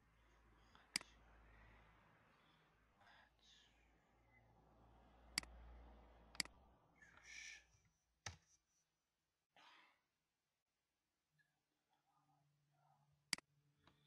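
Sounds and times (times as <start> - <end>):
soft breathing: 0.0 - 8.0
computer mouse clicks: 6.3 - 6.6.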